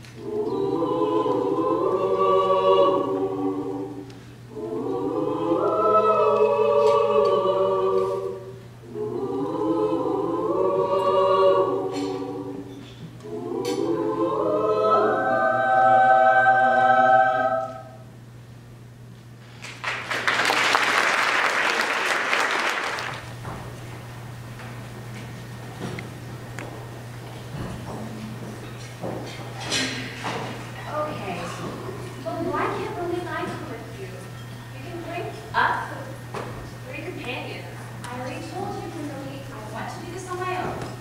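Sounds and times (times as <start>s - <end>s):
mixed choir singing: 0.1s - 18.1s
audience applause: 19.6s - 23.2s.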